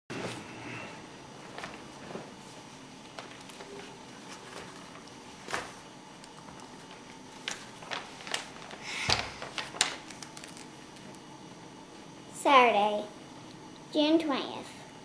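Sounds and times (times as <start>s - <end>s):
paper rustling: 1.5s - 11.2s.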